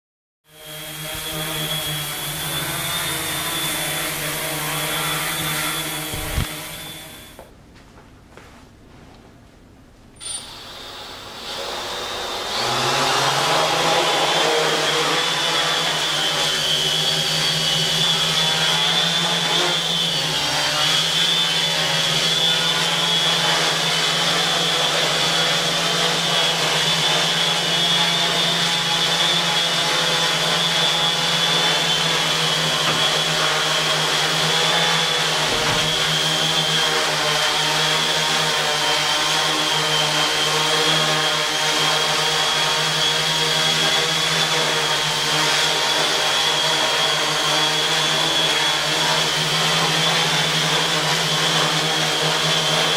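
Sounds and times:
drone propellers buzzing: 0:00.6 - 0:07.4, 0:29.8 - 0:38.1.

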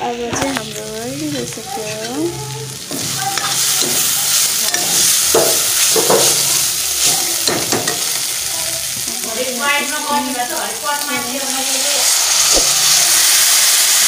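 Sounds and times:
food sizzling in oil: 0:00.0 - 0:14.0
spoon scraping and knocking pot: 0:00.4 - 0:08.2.

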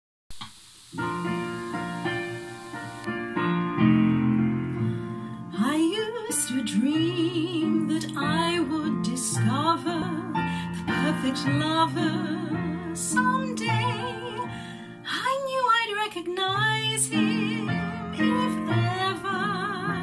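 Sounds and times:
piano accompaniment: 0:01.0 - 0:20.0
woman singing with vibrato: 0:05.5 - 0:20.0.

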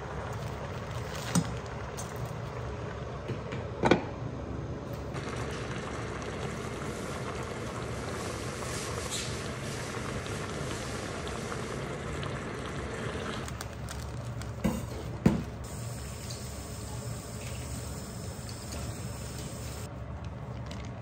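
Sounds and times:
pot simmering hiss: 0:05.0 - 0:19.9.

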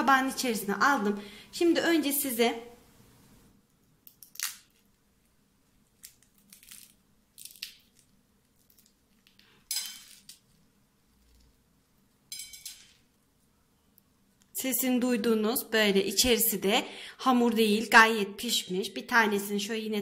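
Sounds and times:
pastry shell crunching: 0:03.8 - 0:12.2.

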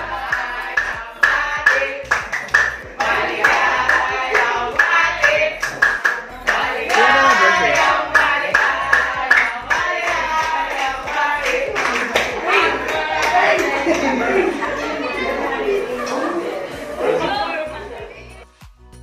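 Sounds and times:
person singing over music: 0:00.0 - 0:18.4
hands clapping: 0:00.2 - 0:14.6.

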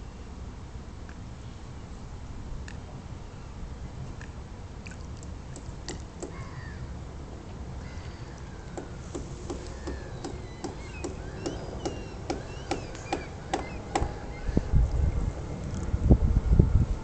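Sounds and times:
small birds chirping: 0:07.8 - 0:15.3.

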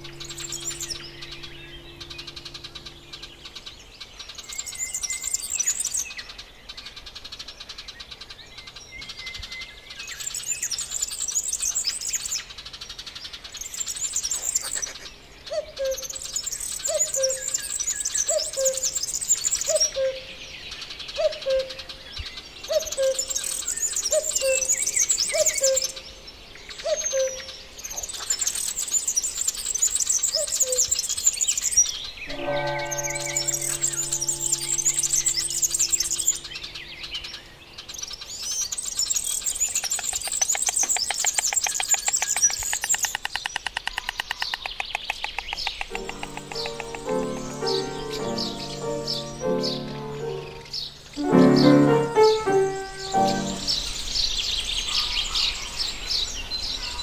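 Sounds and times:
low falling bird call: 0:00.0 - 0:05.8, 0:32.3 - 0:37.5, 0:45.4 - 0:54.2
rapid high bird chirping: 0:00.0 - 0:06.0, 0:28.0 - 0:37.2, 0:38.4 - 0:54.3.

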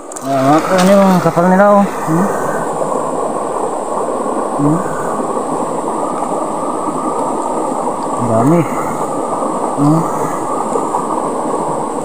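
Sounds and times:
stream flowing over rocks: 0:00.0 - 0:12.0.

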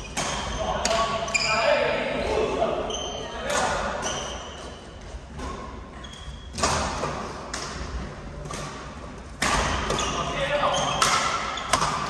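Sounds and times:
shoes squeaking on court floor: 0:00.0 - 0:07.0, 0:09.7 - 0:12.0
rackets striking shuttlecock: 0:10.9 - 0:12.0.

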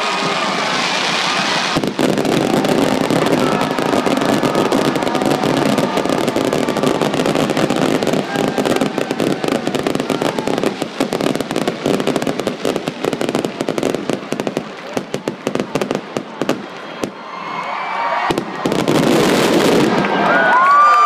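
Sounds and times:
crowd cheering and whistling: 0:00.0 - 0:11.7, 0:16.2 - 0:21.0
fireworks crackling and popping: 0:00.0 - 0:21.0.

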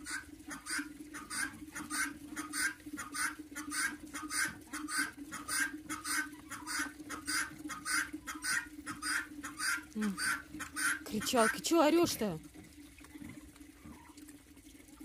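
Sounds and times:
guinea fowl calling: 0:00.0 - 0:11.6.

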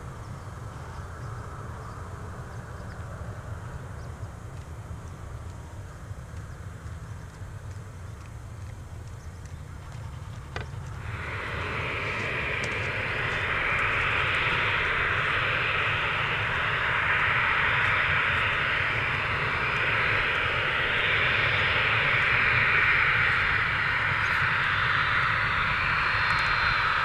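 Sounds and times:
low rumble: 0:00.0 - 0:27.0
jet engines whining: 0:09.4 - 0:27.0.

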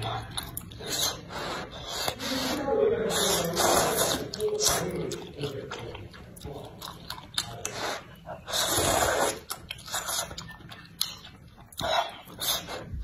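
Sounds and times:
person chewing: 0:00.0 - 0:13.0
person slurping noodles: 0:00.7 - 0:04.9, 0:07.6 - 0:10.3.

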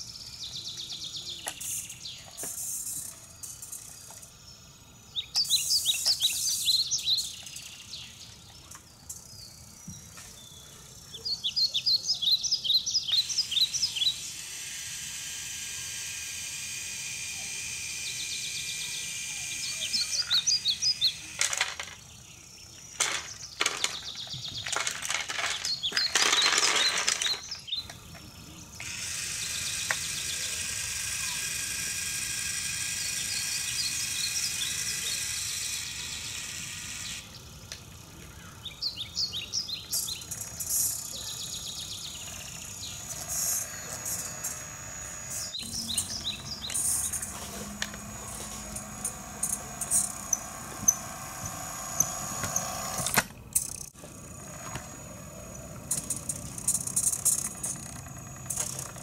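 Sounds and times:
electric motor whirring: 0:13.1 - 0:22.0, 0:24.7 - 0:37.3, 0:40.0 - 0:59.0
toy rubble clattering and sliding: 0:21.3 - 0:22.1, 0:22.9 - 0:28.3, 0:39.9 - 0:41.2, 0:42.2 - 0:59.0.

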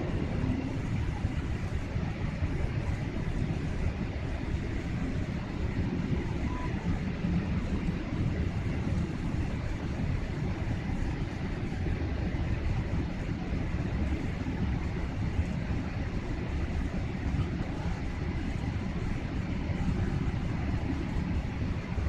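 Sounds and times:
faint thin hum: 0:00.0 - 0:09.8
airliner engine and air rumble: 0:00.0 - 0:22.0.

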